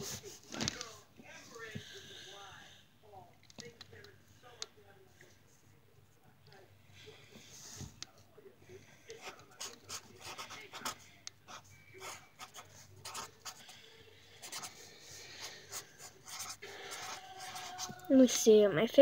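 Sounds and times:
pen scratching on paper: 9.1 - 17.9.

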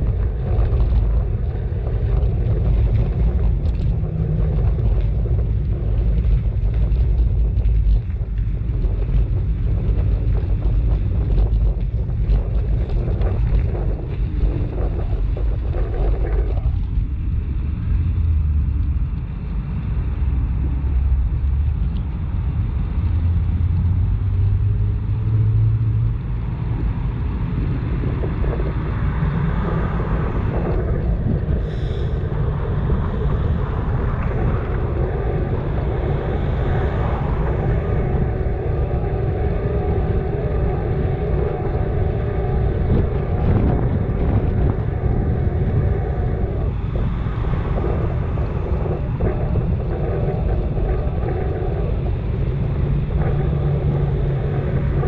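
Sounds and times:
road and wind noise: 0.0 - 55.0
low rising tone: 20.2 - 55.0.

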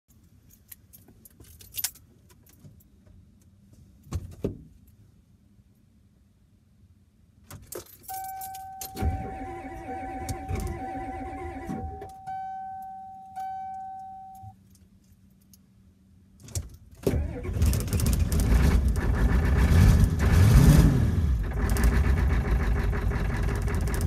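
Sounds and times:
keys jangling in ignition: 0.4 - 2.9, 7.5 - 10.9
steady warning tone: 8.1 - 14.6
starter cranking engine: 21.4 - 24.0.

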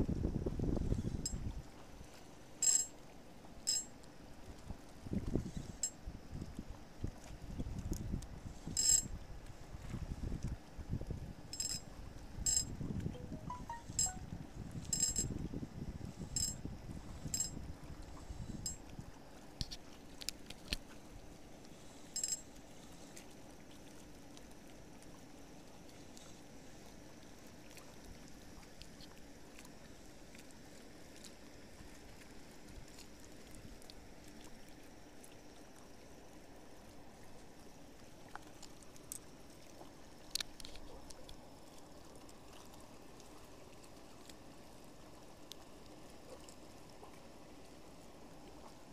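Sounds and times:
sharp clicks and clinks: 2.6 - 2.9, 3.7 - 3.9, 8.8 - 9.1, 11.6 - 11.8, 12.5 - 14.2, 14.9 - 15.3, 16.4 - 16.6, 22.2 - 22.4.

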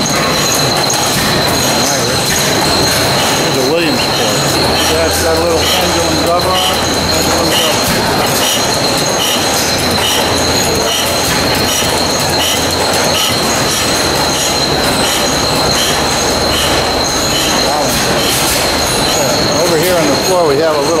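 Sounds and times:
gas engine clattering: 0.0 - 21.0
high mechanical whine: 0.0 - 21.0
short high squeak: 0.0 - 21.0.

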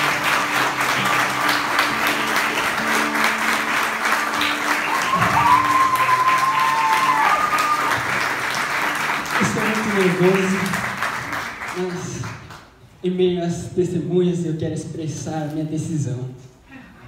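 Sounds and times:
acoustic guitar: 0.0 - 11.5
audience clapping: 0.0 - 12.8
high-pitched cheer: 4.4 - 8.4.

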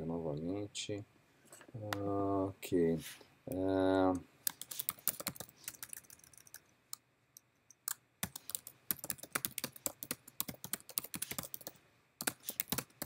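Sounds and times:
typing on computer keyboard: 4.5 - 6.6, 7.9 - 13.0.

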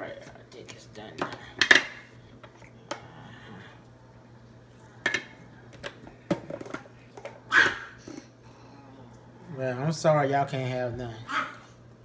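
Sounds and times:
plastic clatter: 5.1 - 7.4.

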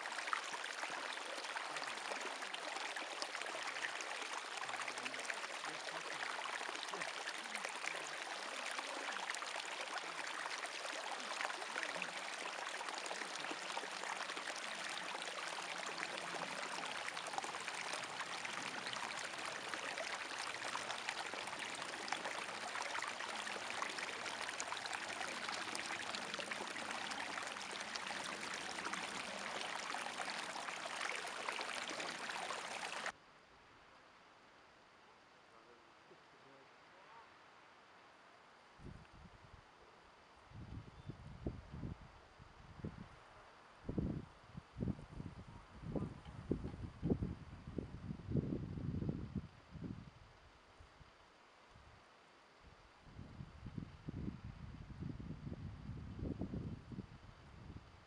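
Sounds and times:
brook trickling over stones: 0.0 - 33.2.

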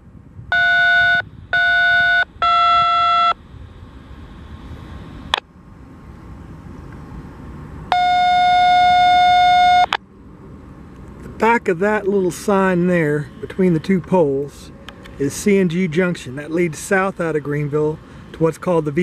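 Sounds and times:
touch-tone beeps over radio: 0.5 - 3.4
steady radio tone: 0.5 - 5.5.

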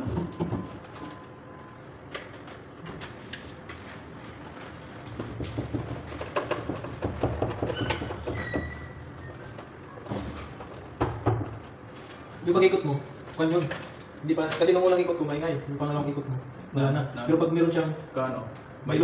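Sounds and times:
plastic and metal clicks and knocks: 5.2 - 8.6.

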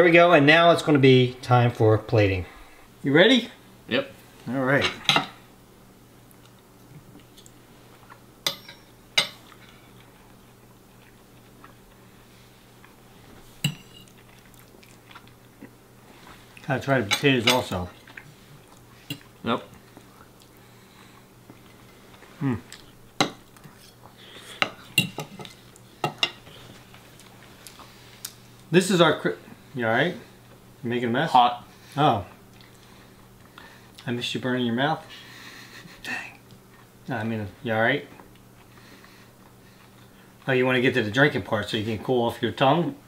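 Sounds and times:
fork clinking against plate: 8.5 - 9.5, 13.6 - 14.1.

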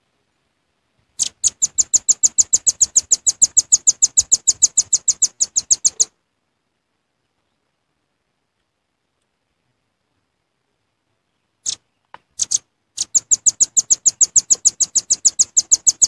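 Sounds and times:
bird trilling high chips: 1.2 - 6.1, 12.4 - 16.0.

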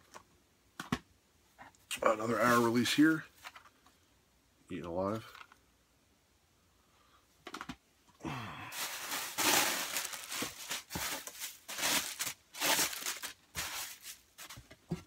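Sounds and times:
packaging rustling and crinkling: 8.8 - 14.7.

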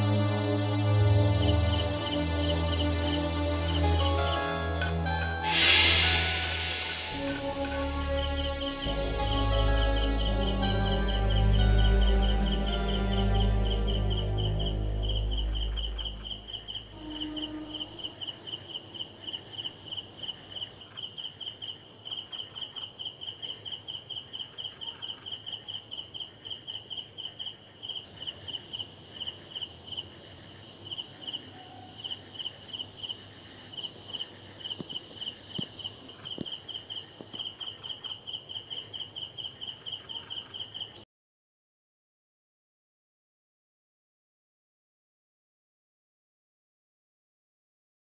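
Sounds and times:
crickets chirping: 0.6 - 41.0
higher chirping: 1.4 - 19.1.

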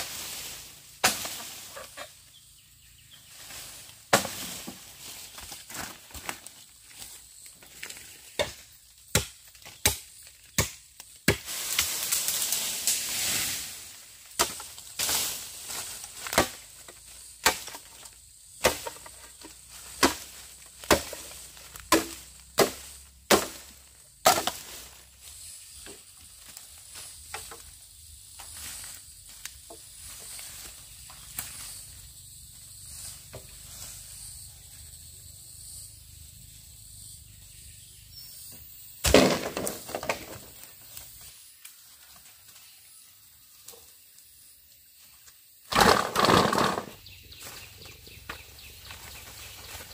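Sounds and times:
axe blows chopping wood: 8.4 - 10.0, 21.9 - 24.6, 39.0 - 40.3.

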